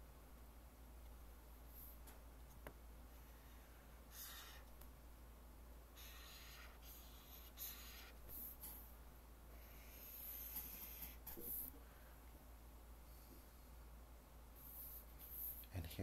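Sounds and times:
pencil scratching on paper: 0:03.6 - 0:04.7, 0:06.0 - 0:08.8, 0:09.6 - 0:11.7.

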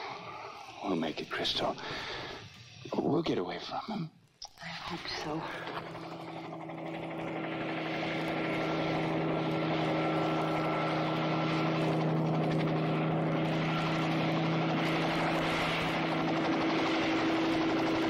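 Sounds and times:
aircraft engine droning overhead: 0:04.8 - 0:18.0.

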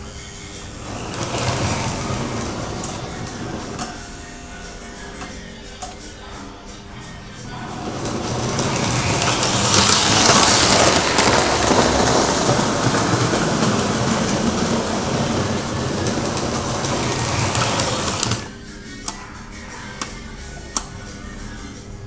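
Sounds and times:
toy train rumbling on metal rails: 0:00.6 - 0:04.0, 0:07.5 - 0:18.5.

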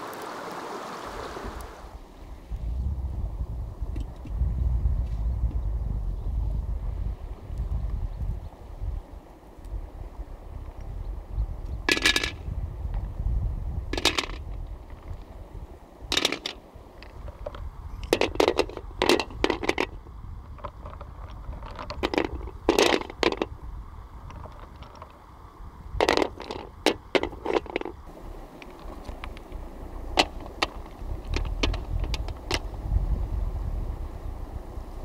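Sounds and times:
stones clacking in metal wok: 0:14.0 - 0:14.4, 0:16.1 - 0:23.5, 0:30.1 - 0:32.7.

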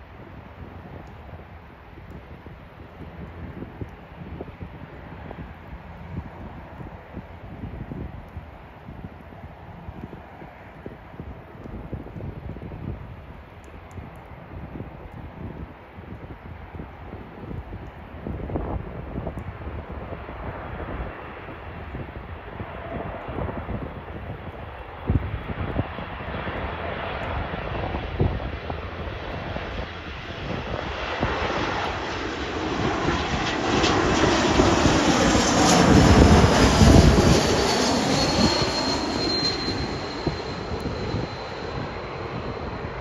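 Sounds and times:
jet engines on landing approach: 0:00.0 - 0:43.0
jet engine whine falling in pitch: 0:26.8 - 0:43.0.

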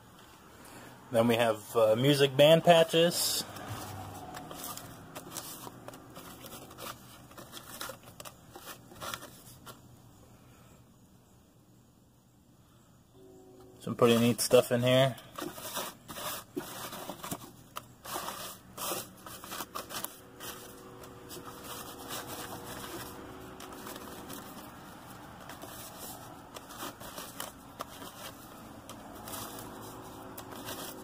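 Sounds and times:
cloth patches rustling in a box: 0:02.6 - 0:09.8, 0:13.9 - 0:31.0.

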